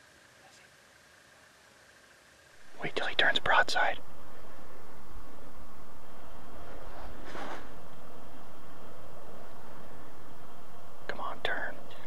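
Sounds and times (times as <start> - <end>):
low rumble: 2.6 - 12.0.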